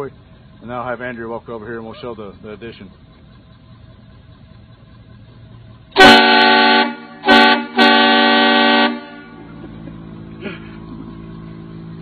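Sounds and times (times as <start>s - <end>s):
truck air horn blasts: 5.9s - 9.6s.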